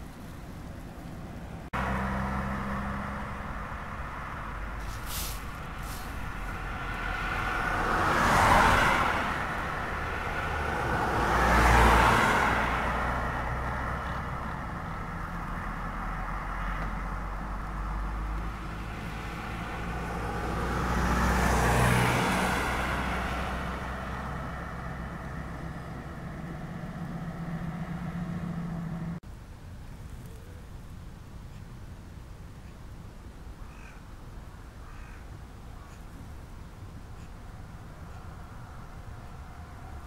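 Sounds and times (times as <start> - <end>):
cars passing: 0.0 - 29.2, 33.7 - 40.0
low traffic rumble: 0.0 - 40.0.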